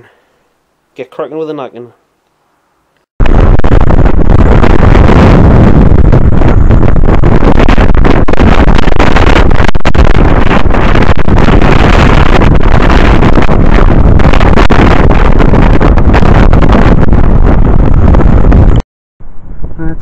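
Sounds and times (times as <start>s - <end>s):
wind buffeting the microphone: 3.2s - 18.8s.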